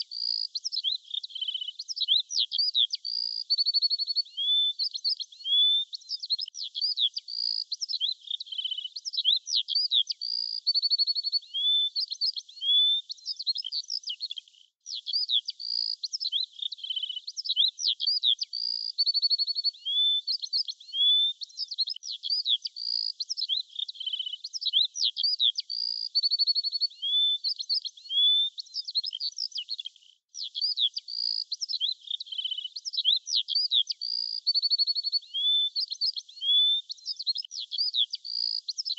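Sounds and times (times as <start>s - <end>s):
birds chirping and trilling: 19.7s - 38.9s.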